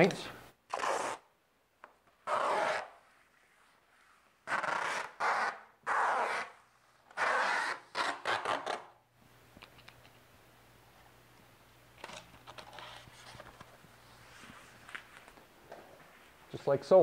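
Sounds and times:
hand rubbing tape rasping: 0.7s - 1.3s, 2.1s - 9.0s.

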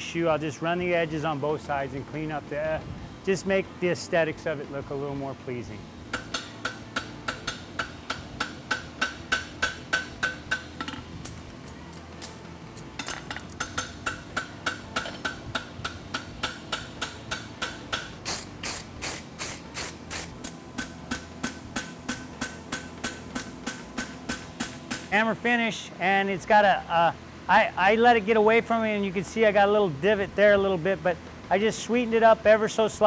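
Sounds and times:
hammer striking horseshoe on anvil: 6.1s - 11.0s, 13.0s - 18.2s, 20.8s - 25.1s.

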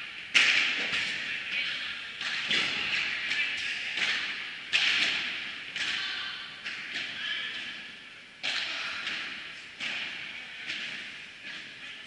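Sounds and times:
racket hitting ball: 0.3s - 1.2s, 2.2s - 7.8s, 8.4s - 11.7s
ball bouncing off court: 2.2s - 7.8s.

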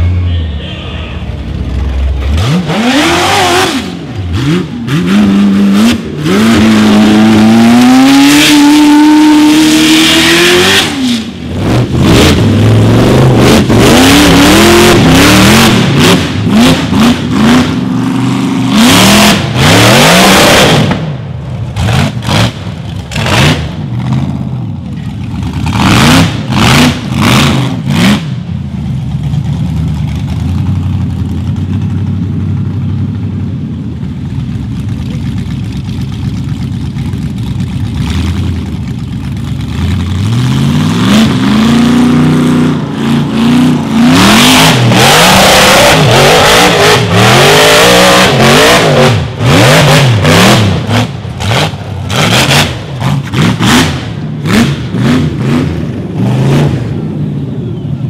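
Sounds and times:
engine revving hard: 2.2s - 21.0s, 21.8s - 24.2s, 25.6s - 28.3s, 40.1s - 56.9s.

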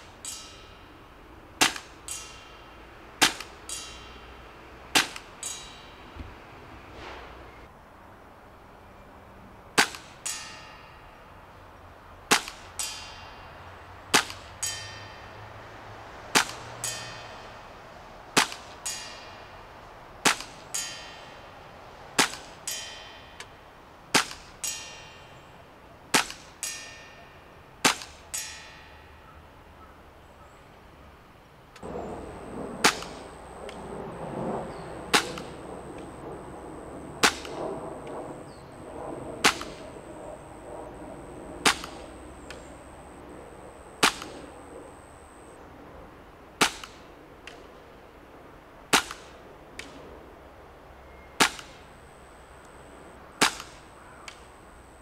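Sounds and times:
airsoft pistol shots: 3.2s - 3.6s, 12.3s - 12.7s, 14.1s - 14.5s, 16.4s - 16.7s, 20.2s - 20.6s, 26.1s - 26.5s, 32.8s - 33.2s, 35.1s - 35.6s, 37.2s - 37.6s, 39.4s - 39.8s, 41.6s - 42.1s, 44.0s - 44.4s, 46.6s - 47.0s, 53.4s - 53.8s
bb ringing metal target: 14.2s - 15.5s, 16.4s - 17.6s, 26.6s - 27.5s.

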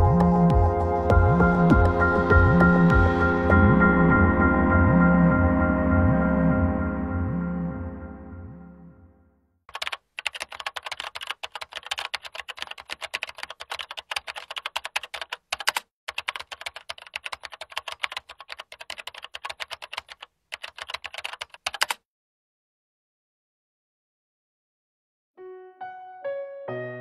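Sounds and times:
computer keyboard typing clicks: 9.7s - 22.0s.

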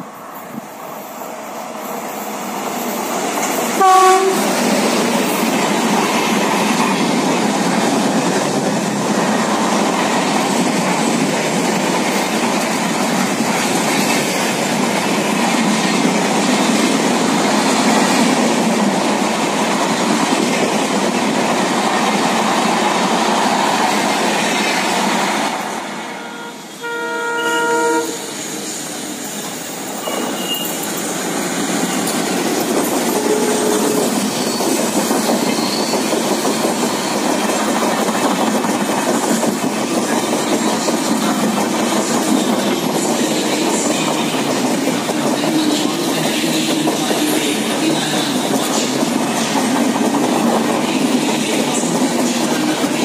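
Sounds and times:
train coaches rumbling on rails: 0.0s - 53.0s
diesel locomotive chord horn: 3.8s - 4.6s, 26.0s - 28.4s, 33.1s - 34.2s
train horn blast: 3.8s - 4.6s, 26.1s - 28.4s, 33.1s - 34.2s.

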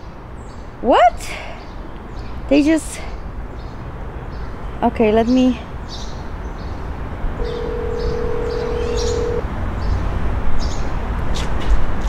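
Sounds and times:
small birds chirping: 1.5s - 10.9s
phone ringback tone: 7.4s - 9.4s.

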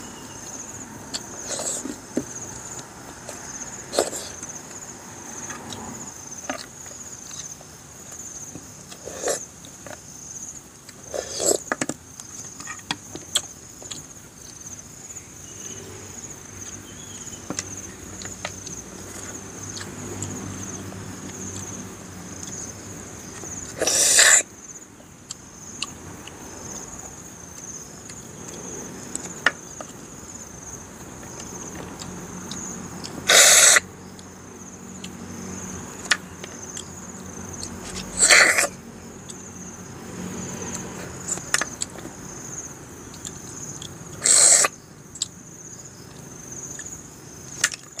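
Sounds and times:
high insect drone: 0.0s - 48.0s
loud slurps: 23.8s - 24.4s, 33.3s - 33.8s, 37.9s - 38.8s, 44.2s - 44.7s.

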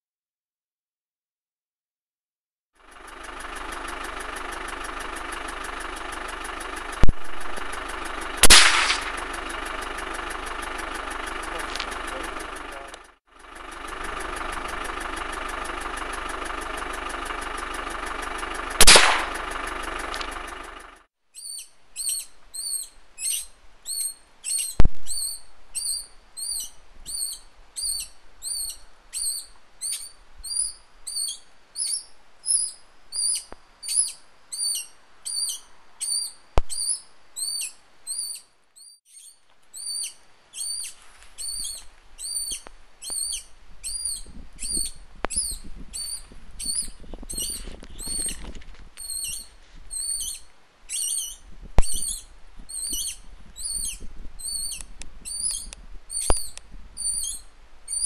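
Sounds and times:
steady engine hum: 2.8s - 21.1s
high chirps: 2.9s - 48.4s, 49.0s - 58.0s
rifle crack: 7.0s - 12.2s, 18.7s - 20.6s.

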